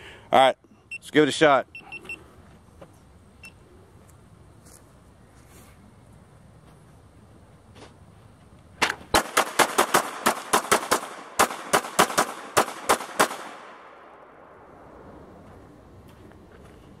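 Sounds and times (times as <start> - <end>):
pistol shots with echo: 9.1 - 14.0.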